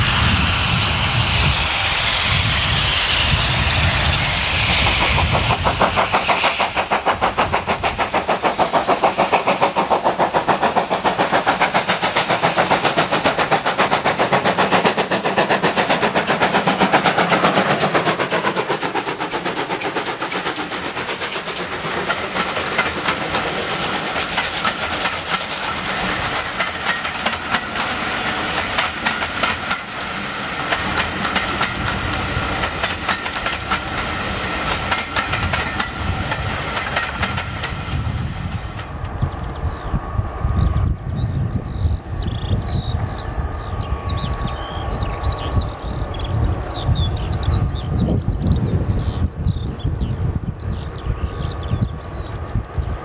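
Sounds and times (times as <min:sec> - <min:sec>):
steam locomotive exhaust beats: 0:00.0 - 0:53.0
train wheels clacking on rail joints: 0:04.8 - 0:40.0.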